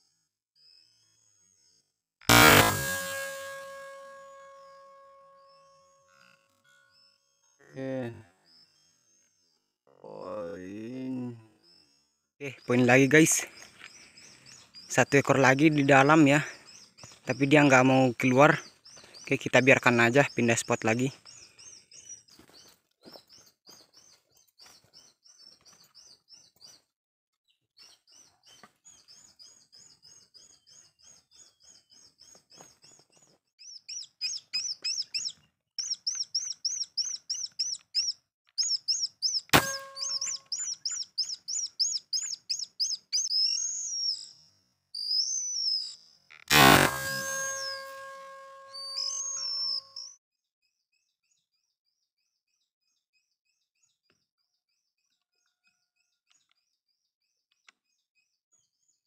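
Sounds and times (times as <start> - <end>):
birds chirping: 0.6 - 26.9, 27.5 - 50.2
air rifle shot: 39.6 - 40.2, 46.5 - 47.7
held chime: 39.6 - 40.5, 46.8 - 50.1.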